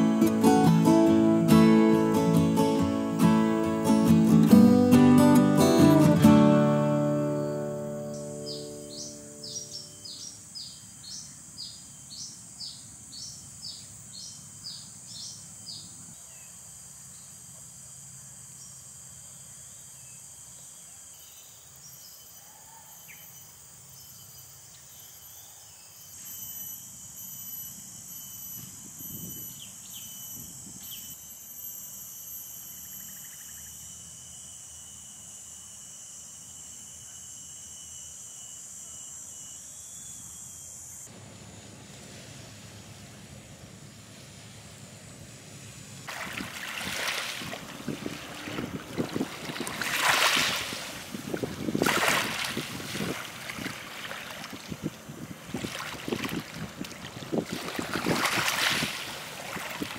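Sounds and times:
insects droning and trilling: 0.0 - 59.9
bird chirping: 6.9 - 16.5.

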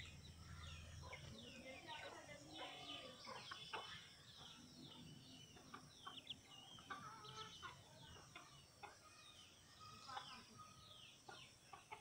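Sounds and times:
faint rooster clucking: 2.5 - 9.2, 9.8 - 12.0.

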